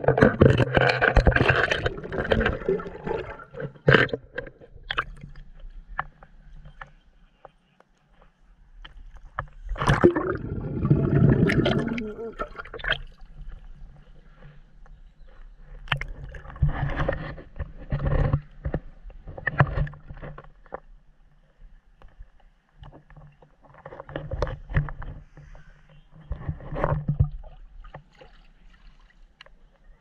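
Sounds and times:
pool water splashing and lapping: 0.0 - 5.5, 9.6 - 14.1, 27.3 - 30.0.

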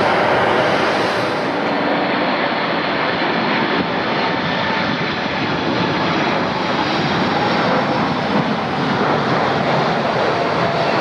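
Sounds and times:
airliner engine rushing: 0.0 - 11.0.

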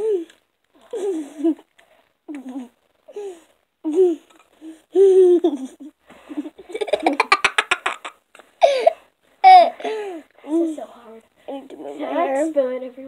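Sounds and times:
girls giggling and laughing: 5.0 - 10.2.

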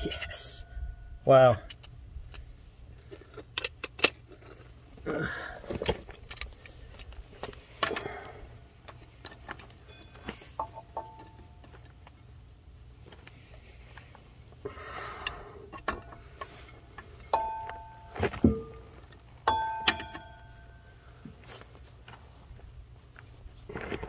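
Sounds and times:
faint metal ring: 9.3 - 11.9, 15.4 - 21.3
steel hand tools clinking: 17.2 - 18.7.

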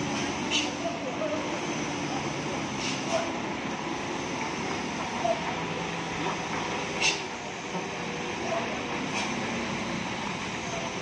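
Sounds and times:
diesel truck engine under load: 0.0 - 11.0
tyres on wet road: 0.0 - 11.0
short sharp air hiss: 7.0 - 7.3, 9.1 - 9.4.

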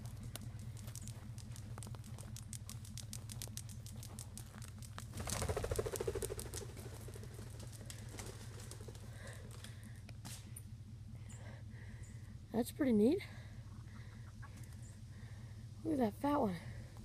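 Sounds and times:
footsteps crunching dry grass: 0.0 - 5.4
brief fluttering rush: 5.2 - 9.1.

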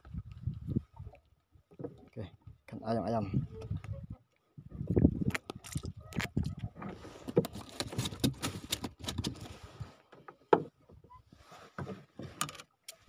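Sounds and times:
clicks and knocks handling fish: 3.6 - 13.0.

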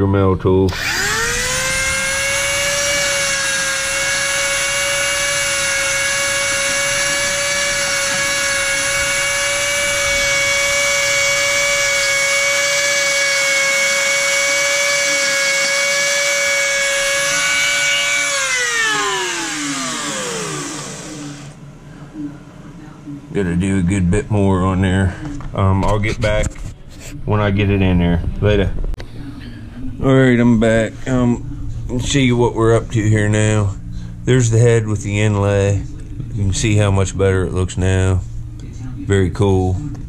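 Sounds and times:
rotary tool grinding stone: 0.8 - 21.6.

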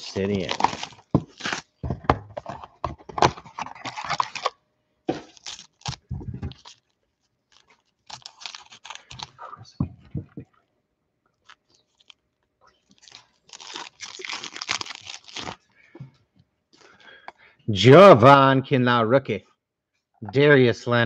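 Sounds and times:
cardboard and foil tearing: 0.0 - 1.8, 3.2 - 4.5, 5.1 - 9.4, 12.9 - 15.6.

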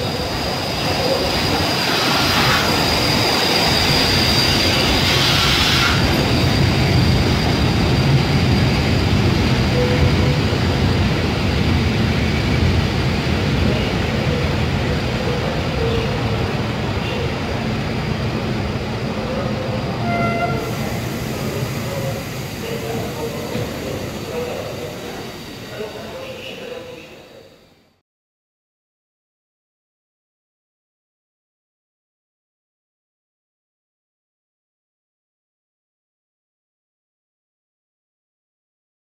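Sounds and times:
steady high squeal: 0.0 - 10.7
train wheels rumbling on rails: 0.0 - 26.7
hiss: 4.8 - 6.1, 20.6 - 25.7.

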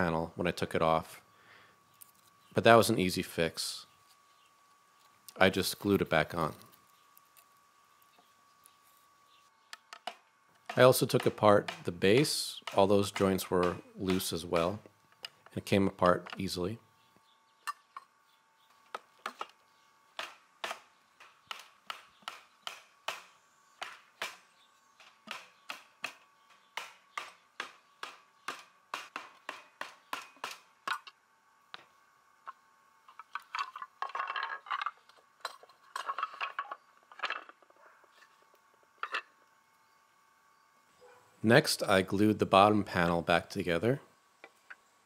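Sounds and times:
wooden pieces clattering: 33.1 - 37.8.

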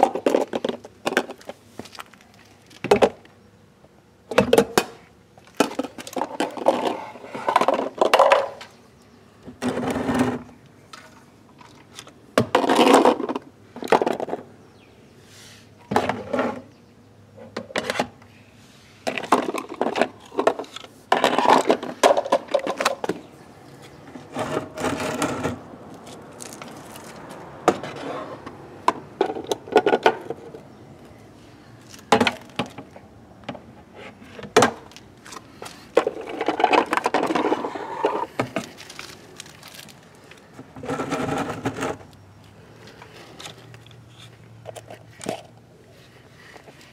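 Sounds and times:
plastic toy bins clattering: 5.5 - 8.6, 11.0 - 14.4, 19.1 - 23.2, 28.9 - 30.6, 34.4 - 42.1.

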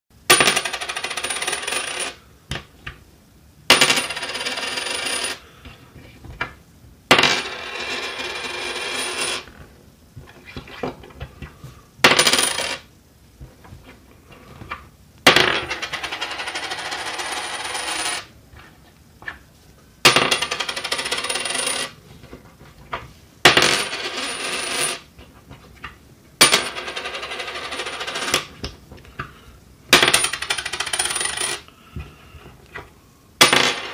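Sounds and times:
coin clinking on wood: 0.3 - 2.2, 3.7 - 5.4, 7.1 - 9.6, 12.0 - 12.9, 15.3 - 18.3, 20.1 - 22.0, 23.5 - 25.1, 26.4 - 28.6, 29.9 - 31.7, 33.4 - 33.9
coin rattling on wooden table: 0.3 - 2.2, 3.7 - 5.4, 7.1 - 9.6, 12.1 - 12.9, 15.3 - 18.3, 20.1 - 22.0, 23.5 - 25.1, 26.4 - 28.6, 29.9 - 31.7, 33.4 - 33.9.

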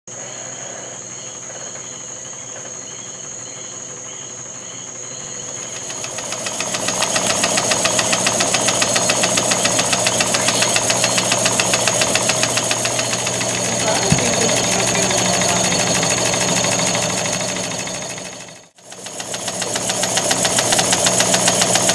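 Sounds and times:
steady high whine: 2.1 - 18.8
model engine exhaust beats: 5.3 - 21.9.

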